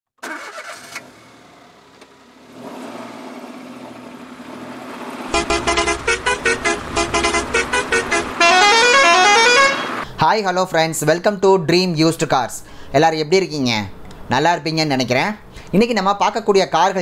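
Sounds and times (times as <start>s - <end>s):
heavy low rumble: 5.3s - 8.4s
short pitched blasts: 5.3s - 10.0s
steady hum: 5.3s - 10.0s.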